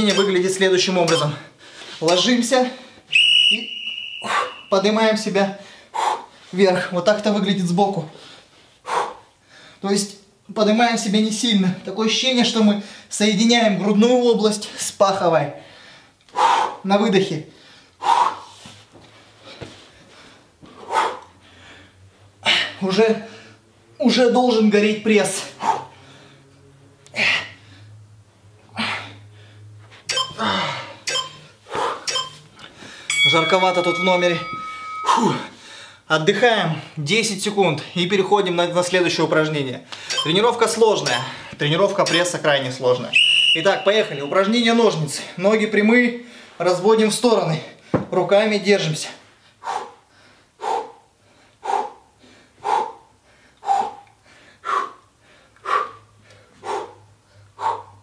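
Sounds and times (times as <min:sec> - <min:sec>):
low steady hum: 0:21.4 - 0:44.7
man breathing out hard: 0:49.6 - 0:58.0.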